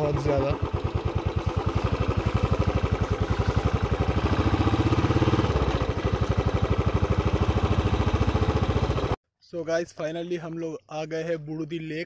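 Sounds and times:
single-cylinder motorcycle engine: 0:00.0 - 0:09.2.

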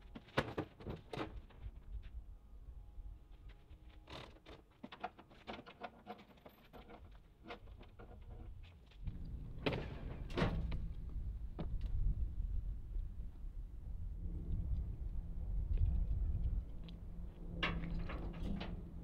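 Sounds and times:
steady low rumble: 0:09.0 - 0:19.0.

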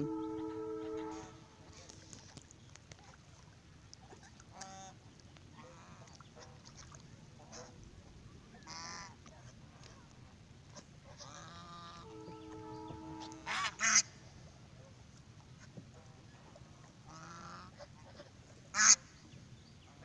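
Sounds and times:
ducks honking: 0:00.0 - 0:01.8, 0:11.2 - 0:14.2.

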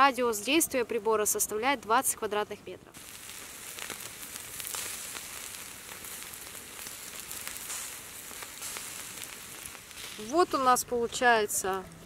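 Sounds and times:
sausages sizzling over embers: 0:00.0 - 0:12.0
embers popping and crackling: 0:02.9 - 0:12.0.

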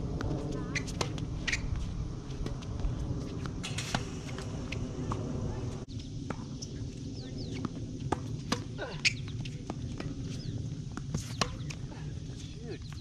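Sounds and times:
shoe squeaks: 0:00.6 - 0:01.8, 0:08.8 - 0:09.4
racket hitting tennis ball: 0:03.4 - 0:05.6, 0:07.6 - 0:10.2, 0:11.0 - 0:11.8
tennis ball bouncing: 0:07.5 - 0:11.8.

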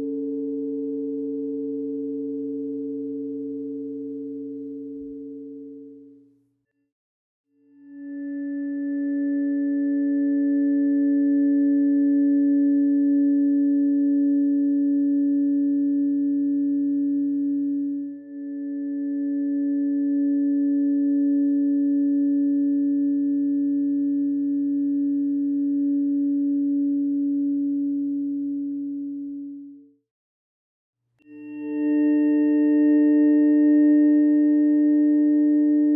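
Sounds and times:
electronic tone chord: 0:31.3 - 0:35.9.

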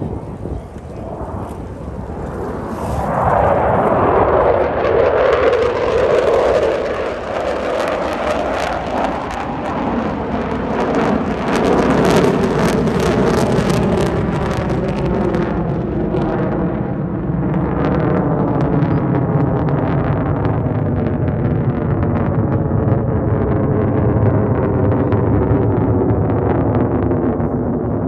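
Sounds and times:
jets roaring past: 0:00.0 - 0:28.0
ragged jet crackle: 0:00.0 - 0:28.0.

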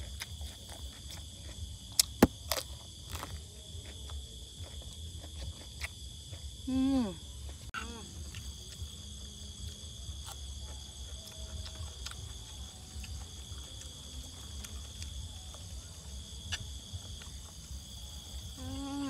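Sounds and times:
crickets and insects chirring: 0:00.0 - 0:19.0.

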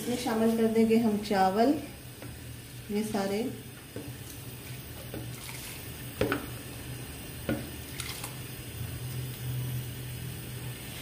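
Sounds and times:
rice and water pouring into pot: 0:03.8 - 0:11.0.

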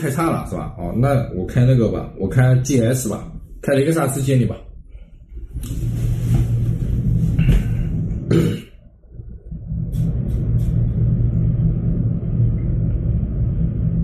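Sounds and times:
lift car rumble and hum: 0:00.0 - 0:14.0.

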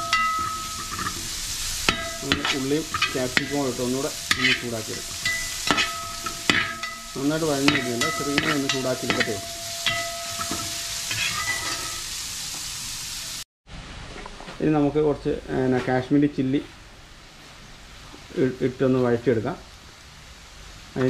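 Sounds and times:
metal spoon scraping a pan: 0:00.0 - 0:12.2
onions sizzling: 0:00.0 - 0:13.4.

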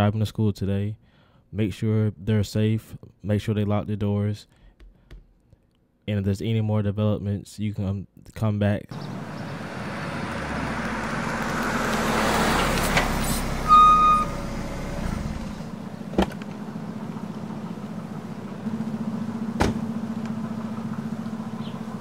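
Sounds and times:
car driving by: 0:08.9 - 0:22.0
short electronic beep: 0:13.7 - 0:14.4
car door latch click: 0:19.6 - 0:19.8.

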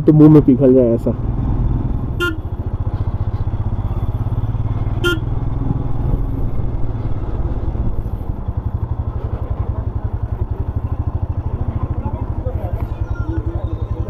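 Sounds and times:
motorcycle engine running: 0:00.0 - 0:14.0
short horn beep: 0:02.2 - 0:02.5, 0:05.0 - 0:05.3.

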